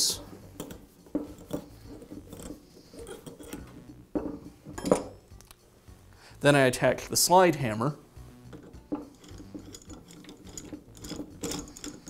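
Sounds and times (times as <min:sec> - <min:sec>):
steel tools clicking and scraping: 0:00.0 - 0:05.3, 0:08.5 - 0:12.0.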